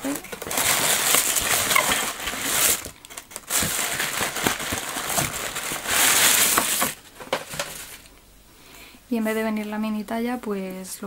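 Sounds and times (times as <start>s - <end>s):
packing paper rustling: 0.0s - 8.1s.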